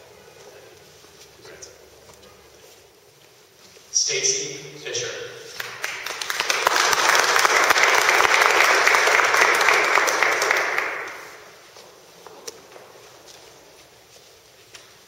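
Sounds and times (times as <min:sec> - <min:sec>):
audience applauding: 0:05.6 - 0:11.6.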